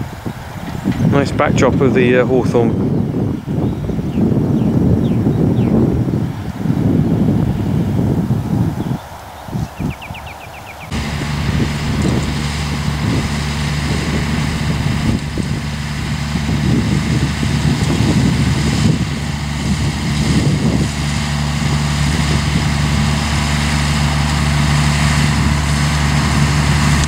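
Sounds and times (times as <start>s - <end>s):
tractor diesel engine running: 10.0s - 27.0s.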